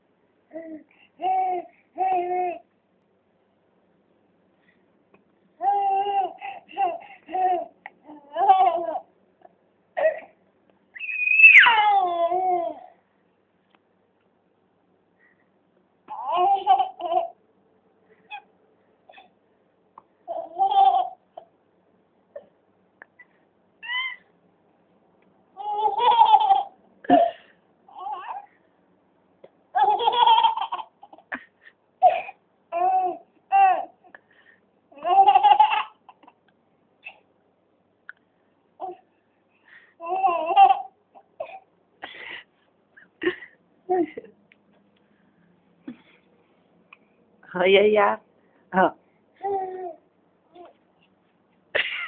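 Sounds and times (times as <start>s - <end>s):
baby babbling: 0.5s - 2.6s, 5.6s - 9.1s, 11.0s - 13.0s, 16.1s - 17.4s, 20.3s - 21.5s, 25.6s - 26.7s, 27.9s - 28.5s, 32.0s - 34.1s, 34.9s - 36.3s, 38.8s - 39.1s, 40.0s - 41.6s, 49.4s - 50.8s
baby giggling and squealing: 11.0s - 12.9s, 16.1s - 17.4s, 18.2s - 18.5s, 23.2s - 24.3s, 25.6s - 27.3s, 29.8s - 31.4s, 35.0s - 36.4s, 40.0s - 41.6s
baby squealing: 11.0s - 12.9s, 23.8s - 24.3s.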